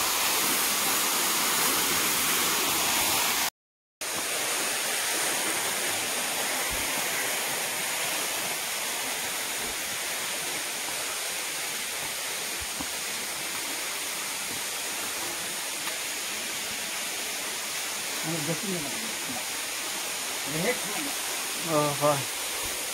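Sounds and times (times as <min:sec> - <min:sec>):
flowing water rushing: 0:00.0 - 0:22.9.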